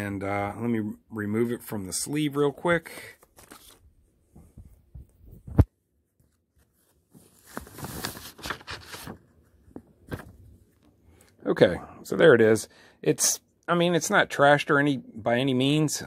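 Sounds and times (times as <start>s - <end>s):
paper sleeve rustling: 2.9s - 3.9s, 6.2s - 10.5s.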